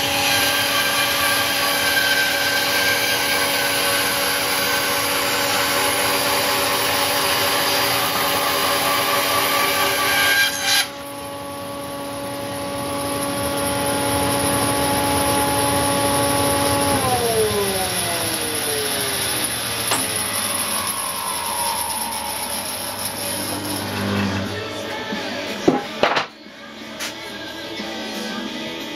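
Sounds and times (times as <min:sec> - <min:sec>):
bandsaw cutting wood: 0:00.0 - 0:24.9
bandsaw motor hum: 0:00.0 - 0:26.2.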